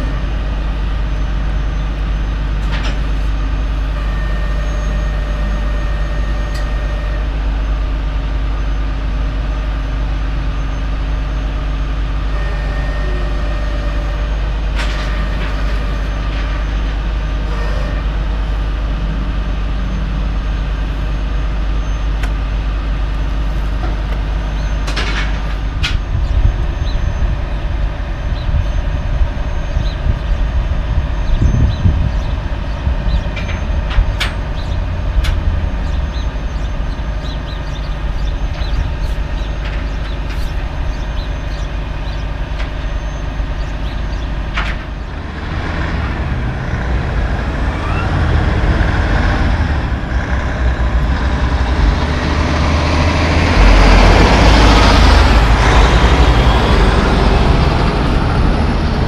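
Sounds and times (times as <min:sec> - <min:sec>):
diesel truck engine running: 0:00.0 - 0:59.0.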